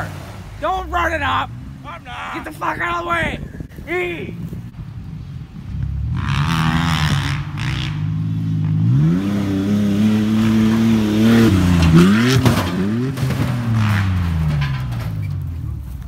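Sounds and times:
truck engine at full throttle: 0.0s - 16.0s
knocks and rattles on rough ground: 10.2s - 16.0s.

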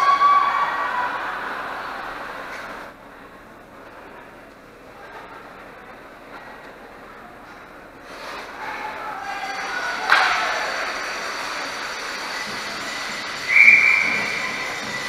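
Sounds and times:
spectators and players voices: 0.0s - 15.0s
shrill whistle blast: 12.1s - 15.0s.

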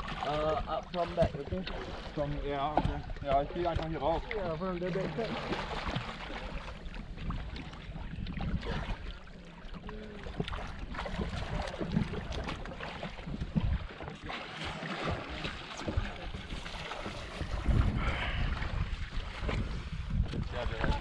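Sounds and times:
water splashing and sloshing: 0.0s - 21.0s
wind buffeting microphone: 5.4s - 14.2s, 15.1s - 21.0s.

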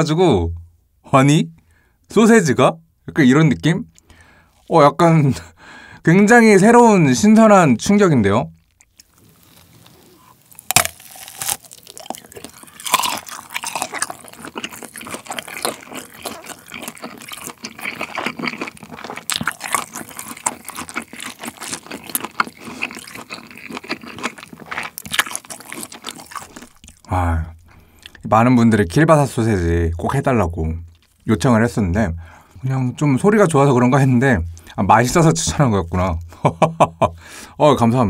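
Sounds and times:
wet juicy chewing: 8.5s - 28.2s
sausage casing snapping: 10.5s - 17.5s.

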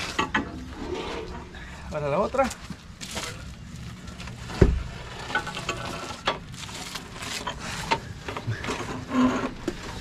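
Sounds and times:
metal tray clanking and scraping: 0.0s - 1.5s, 4.4s - 6.5s.

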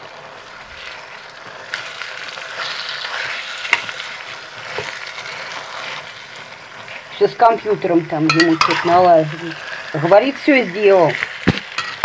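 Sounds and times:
meat sizzling: 0.0s - 12.0s
metal spoon stirring: 8.3s - 9.9s.

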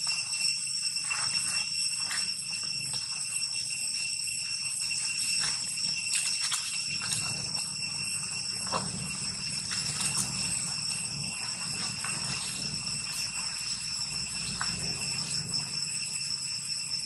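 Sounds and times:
insects droning: 0.0s - 17.0s
dry leaves crackling underfoot: 5.0s - 15.8s.

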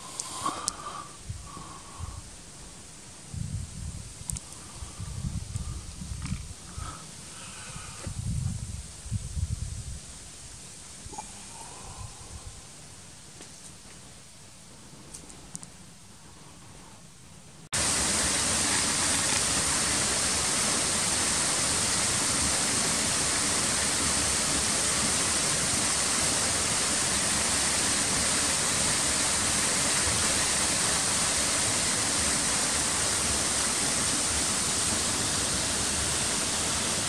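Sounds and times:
waterfall rushing: 17.8s - 37.0s.

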